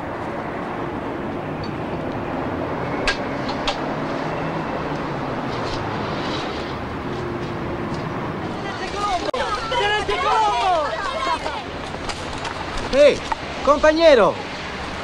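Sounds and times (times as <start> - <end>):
distant traffic rumble: 0.0 - 15.0.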